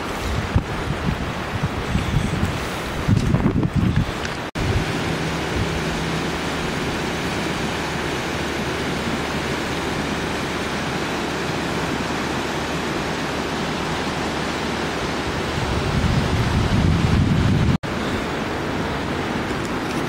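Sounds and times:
river water rushing over rapids: 0.0s - 20.0s.

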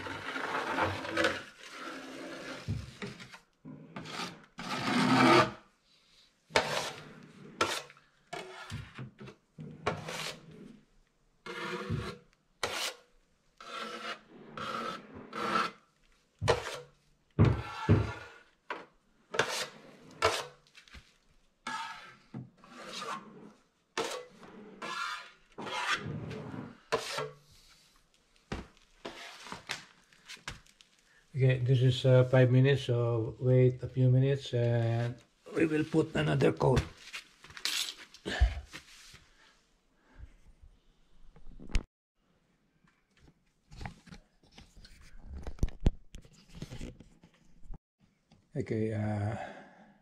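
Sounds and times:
taping knife scraping joint compound: 0.0s - 5.7s, 6.5s - 10.8s, 11.4s - 21.0s, 21.6s - 28.0s, 28.8s - 31.0s.

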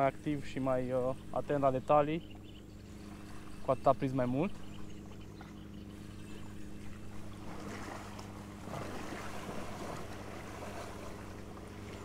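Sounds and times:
motorboat engine droning: 0.0s - 12.0s
water noise: 0.0s - 12.0s.

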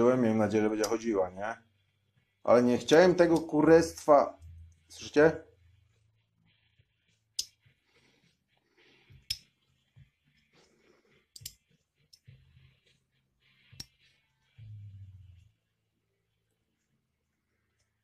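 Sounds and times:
sharp metallic clicks: 11.3s - 12.3s.

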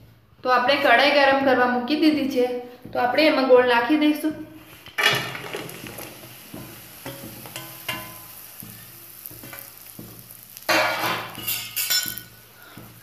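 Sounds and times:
sugar stirred in a hot pan: 4.6s - 13.0s.

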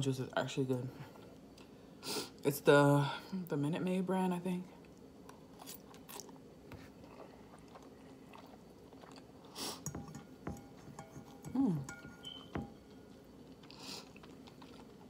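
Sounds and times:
chewing and slurping noodles: 4.9s - 11.0s, 13.1s - 15.0s
metal fork clicking on bowl: 11.0s - 12.7s.

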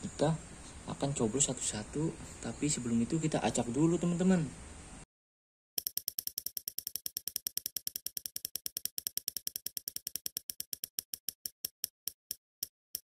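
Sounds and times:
prize wheel clicker ticking: 5.8s - 11.8s.

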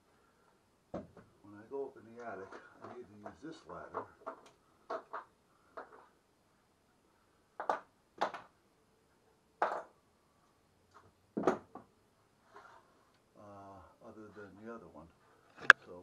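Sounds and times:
hard objects knocking and clattering: 2.2s - 6.1s, 7.6s - 8.5s, 9.6s - 10.0s, 11.4s - 11.9s.

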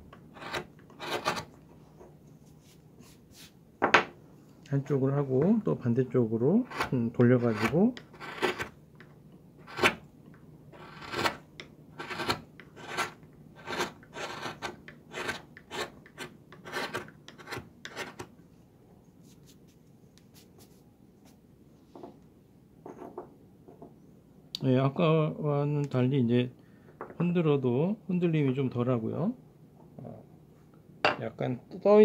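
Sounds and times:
knife scraping wood: 0.3s - 1.5s, 6.7s - 8.7s, 10.8s - 11.4s, 12.0s - 18.2s.

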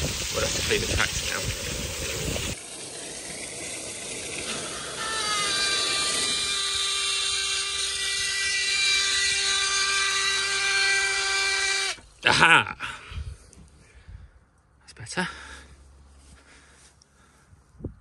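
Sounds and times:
water hissing from hose: 0.0s - 12.0s
water pump whining: 0.0s - 12.1s.

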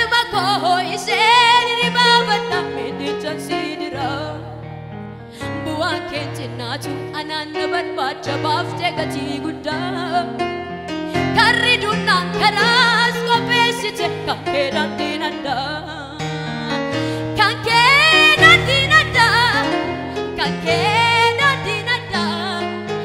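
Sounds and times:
woman singing gospel with vibrato: 20.4s - 22.7s.

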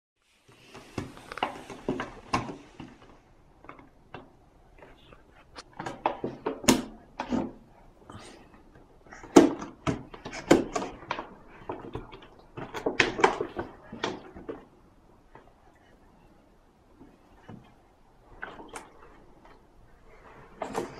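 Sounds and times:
plastic bottle crackling and knocking: 0.7s - 7.6s, 9.1s - 15.5s.

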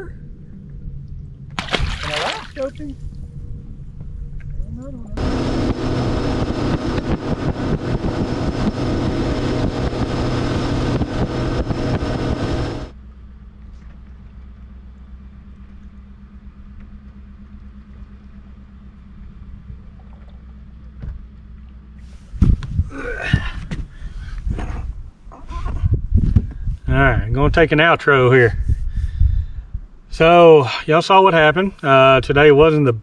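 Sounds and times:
water rushing: 1.6s - 3.0s
wind on microphone: 1.7s - 12.9s, 22.2s - 27.7s, 28.5s - 30.1s
outboard motor running: 5.2s - 12.9s, 13.5s - 22.0s.

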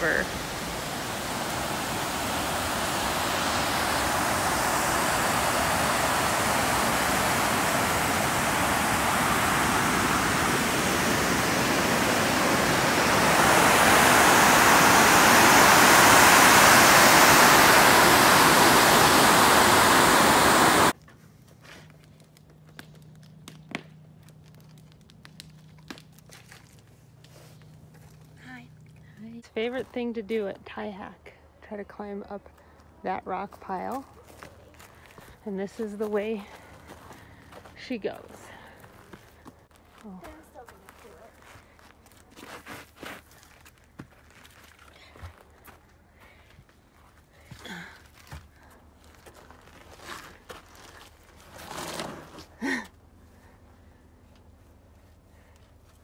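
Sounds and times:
water rushing over spillway: 0.0s - 21.0s.

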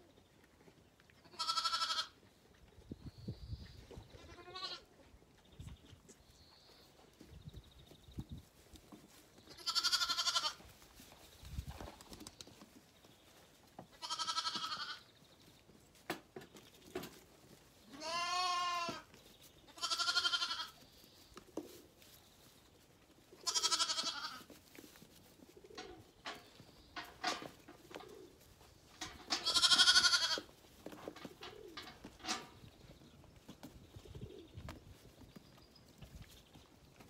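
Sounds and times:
lambs bleating: 1.3s - 2.2s, 4.2s - 4.9s, 9.6s - 10.6s, 14.0s - 15.0s, 18.0s - 19.0s, 19.8s - 20.8s, 23.4s - 24.5s, 29.4s - 30.5s.

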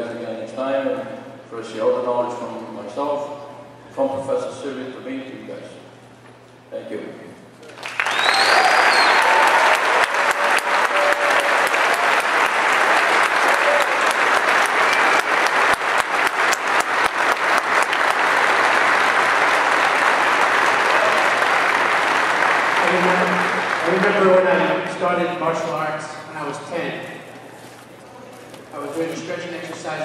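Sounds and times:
crowd applauding: 7.6s - 24.8s
faint cheers: 8.0s - 15.4s.

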